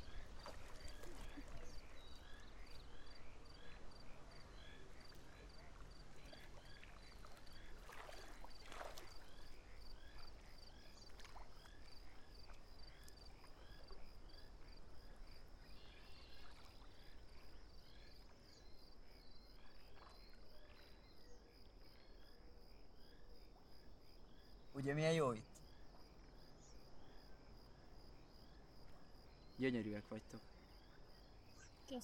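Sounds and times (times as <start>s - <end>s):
water splashing: 0.0s - 1.8s, 6.2s - 9.4s
crickets chirping: 0.0s - 32.0s.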